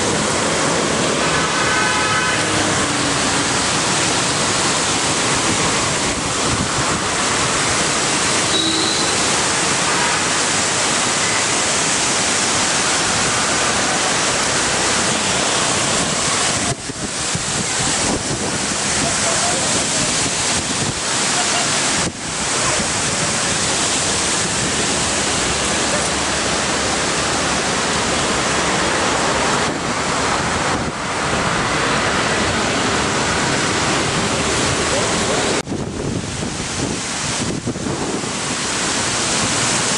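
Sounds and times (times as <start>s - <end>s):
storm wind rushing through trees: 0.0s - 39.9s
wind buffeting microphone: 15.8s - 21.2s, 32.5s - 39.9s.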